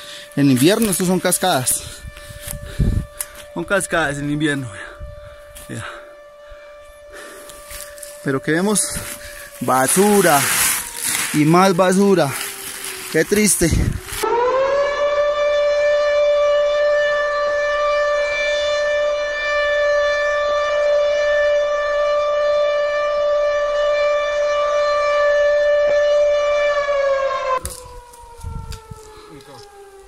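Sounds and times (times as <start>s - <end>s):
siren steady tone: 0.0s - 30.0s.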